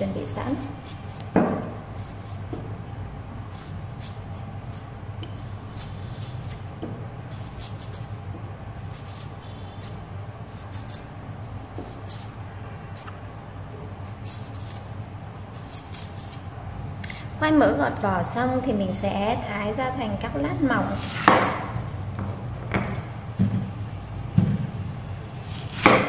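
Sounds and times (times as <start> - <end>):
knife scraping yam skin: 0.1 - 2.6, 3.3 - 13.3, 14.0 - 16.6, 20.7 - 21.9, 25.2 - 26.0.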